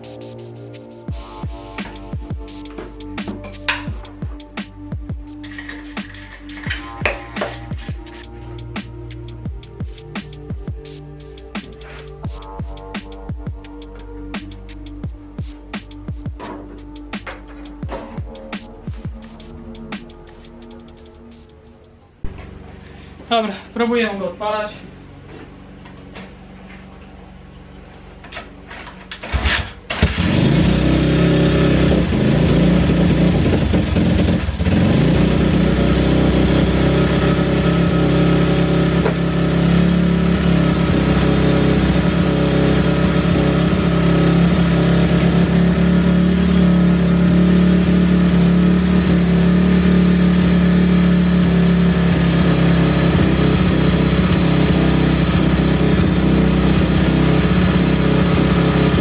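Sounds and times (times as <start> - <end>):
motorcycle engine cranking and running: 1.1 - 8.2, 24.9 - 59.0.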